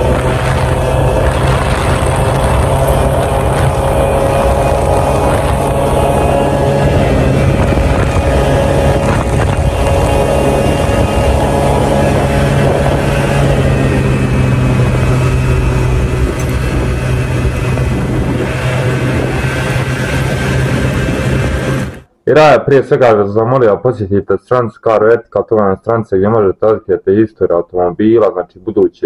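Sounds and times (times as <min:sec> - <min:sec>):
rushing air: 0:00.0 - 0:22.1
scooter motor hum: 0:00.0 - 0:22.1.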